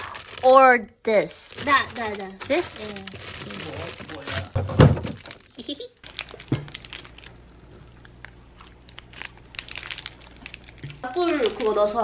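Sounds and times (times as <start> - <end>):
plastic wrapper crinkling: 0.0 - 12.0.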